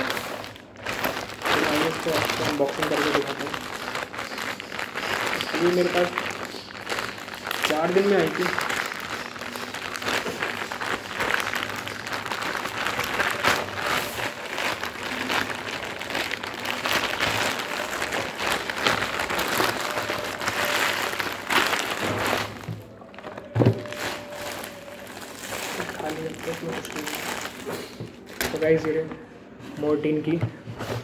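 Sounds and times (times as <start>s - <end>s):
plastic bag crinkling and tearing: 0.0s - 29.2s.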